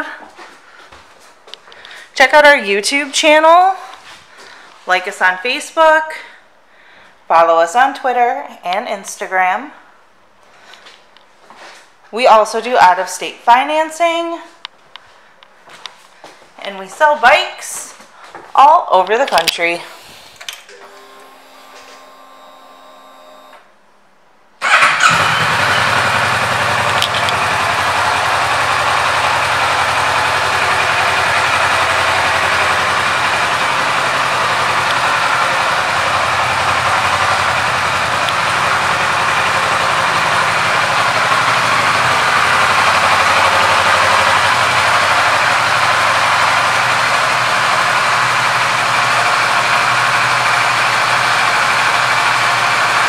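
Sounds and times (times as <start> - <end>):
motorcycle engine starting and idling: 19.4 - 23.7, 24.6 - 53.0.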